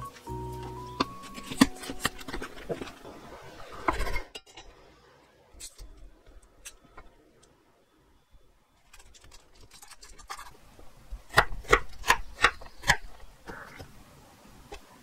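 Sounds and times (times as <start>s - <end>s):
knife chopping carrot: 1.0s - 2.6s.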